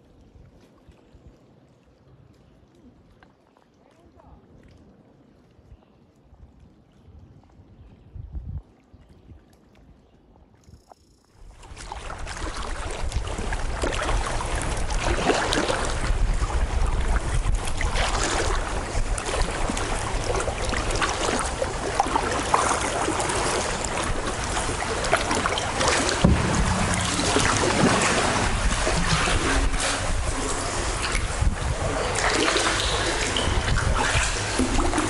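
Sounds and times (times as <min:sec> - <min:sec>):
water running along hull: 0:00.0 - 0:35.0
wind noise on microphone: 0:05.6 - 0:35.0
paddle blades splashing: 0:11.4 - 0:35.0.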